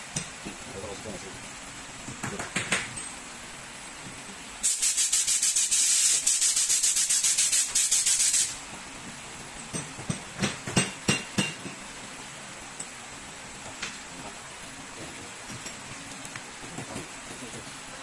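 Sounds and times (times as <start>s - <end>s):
aerosol spray hissing: 4.6s - 8.6s.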